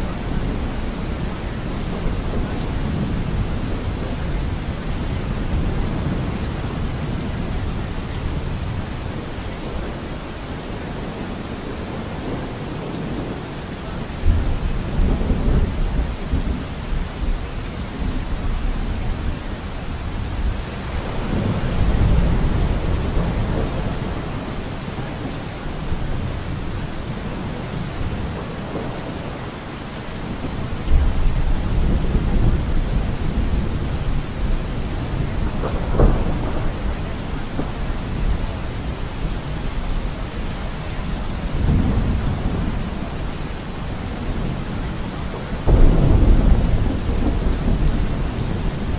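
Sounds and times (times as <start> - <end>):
rain falling: 0.0 - 48.9
rolling thunder: 20.3 - 29.1, 30.2 - 48.9.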